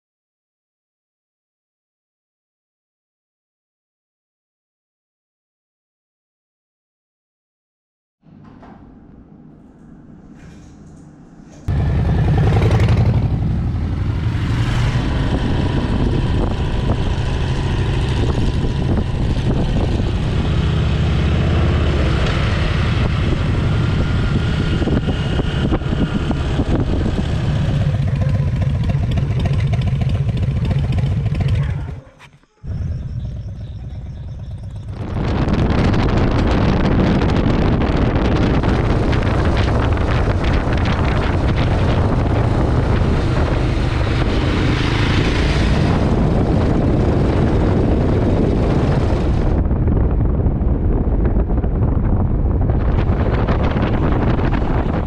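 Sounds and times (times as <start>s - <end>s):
motorcycle engines rumbling: 10.4s - 55.0s
wind noise on microphone: 11.7s - 32.1s, 32.7s - 55.0s.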